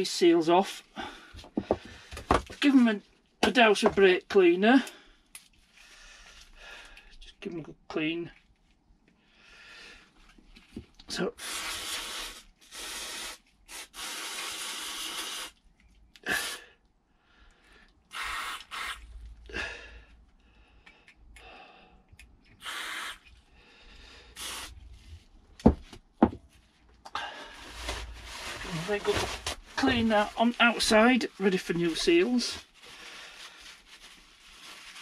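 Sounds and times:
aerosol can spraying hiss: 0:22.6 - 0:23.2, 0:24.4 - 0:24.8.

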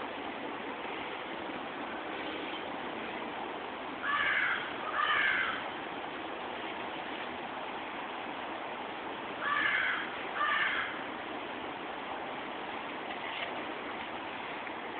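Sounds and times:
outdoor hiss: 0:00.0 - 0:14.9
crow cawing: 0:04.0 - 0:05.6, 0:09.4 - 0:11.0.

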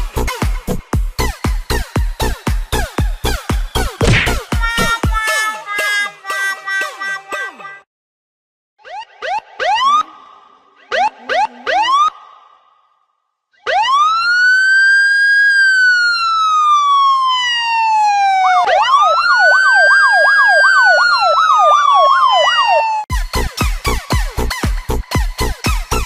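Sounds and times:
siren wailing: 0:08.8 - 0:12.6, 0:13.6 - 0:23.1
siren yelp: 0:08.8 - 0:12.6, 0:13.6 - 0:23.1.

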